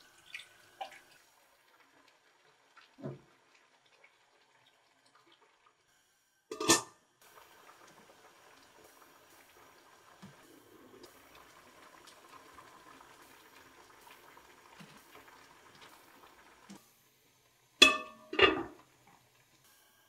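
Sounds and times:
pan simmering faintly: 6.5 - 19.6.

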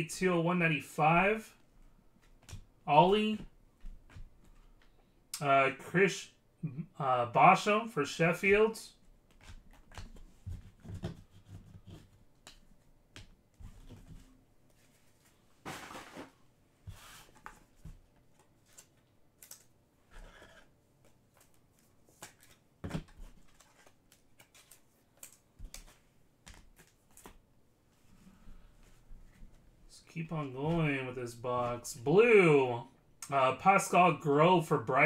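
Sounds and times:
trading cards clicking and rustling: 17.4 - 19.8, 21.0 - 27.4.

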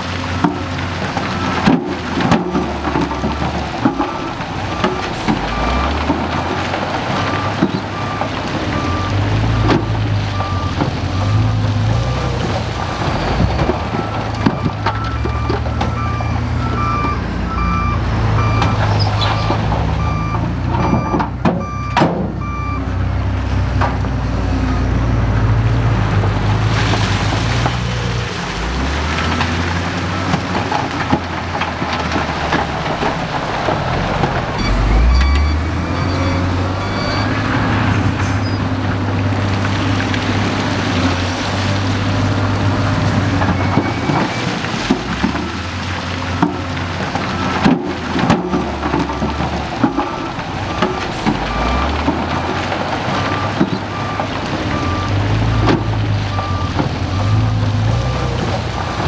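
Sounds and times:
diesel engine running under load: 0.0 - 59.0
reversing alarm beeping: 8.8 - 11.5, 14.0 - 22.9, 34.6 - 38.6, 53.2 - 55.7, 56.3 - 57.5.

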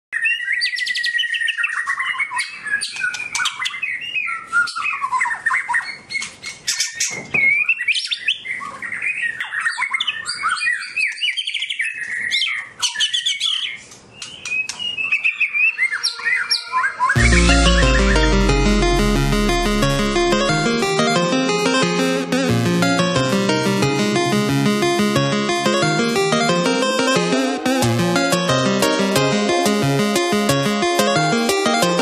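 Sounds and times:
bird singing whistles and trills: 0.2 - 6.0.

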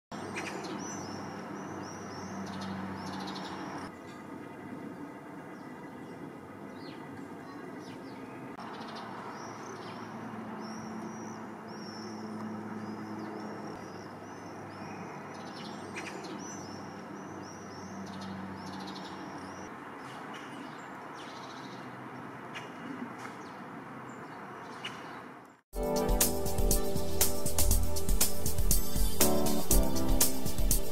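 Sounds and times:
songbirds chirping: 0.1 - 30.9.

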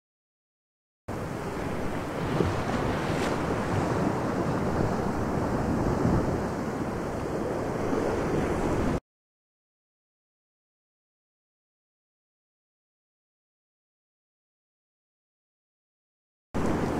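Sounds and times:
sea wind: 1.1 - 9.0, 16.6 - 16.9
waves: 1.1 - 9.0, 16.6 - 16.9.

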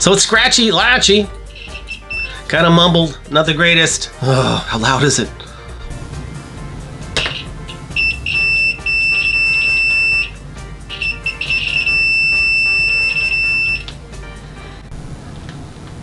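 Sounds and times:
multimeter high-pitched beep: 1.6 - 2.4, 8.0 - 13.9.

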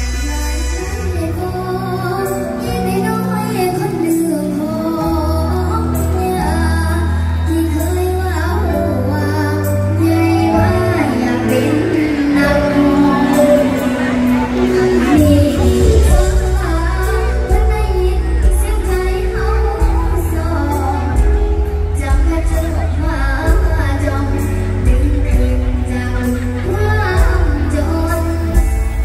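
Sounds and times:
live band music through speakers: 0.0 - 29.0
girl singing: 0.2 - 29.0.

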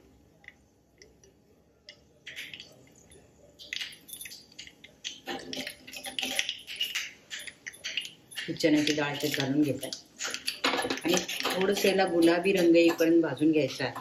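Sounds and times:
seeds crackling in hot oil: 3.6 - 14.0.

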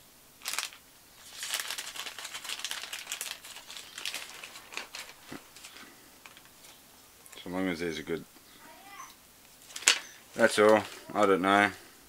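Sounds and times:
plastic bag crinkling: 0.4 - 6.8, 9.6 - 11.1.

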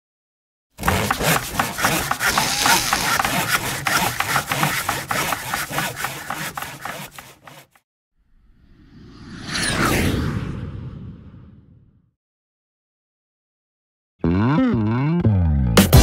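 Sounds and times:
scraping and rubbing: 0.8 - 7.8.

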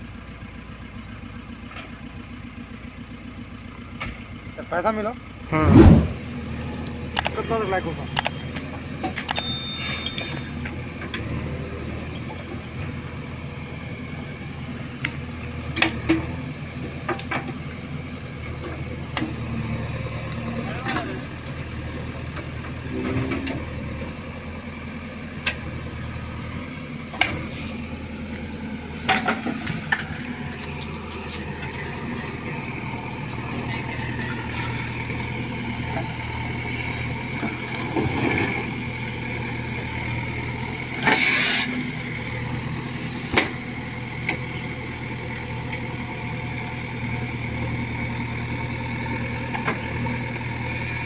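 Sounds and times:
diesel engine running: 0.0 - 51.0
noisy rush: 5.5 - 6.3.

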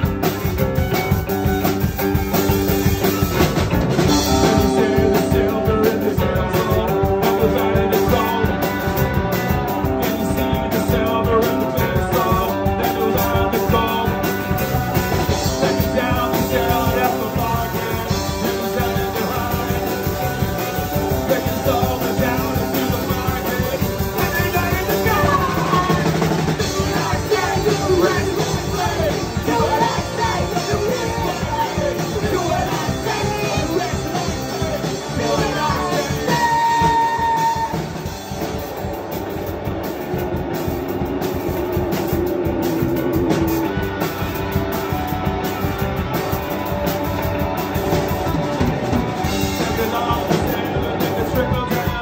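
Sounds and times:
drum kit: 0.0 - 52.0
electric bass: 0.0 - 52.0
electric guitar: 0.0 - 52.0
man singing: 4.1 - 38.0, 49.2 - 52.0.

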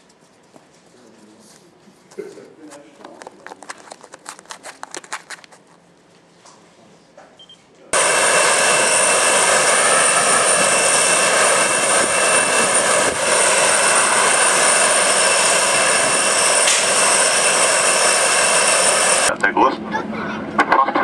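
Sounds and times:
high whining tones: 8.0 - 19.3
jet engines running: 8.0 - 21.0.

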